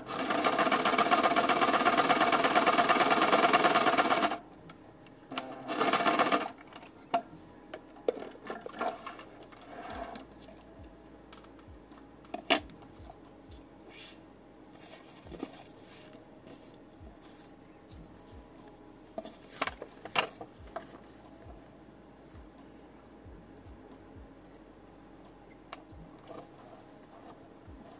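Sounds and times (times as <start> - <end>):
electric sewing machine running: 0.0 - 4.4, 5.3 - 6.6.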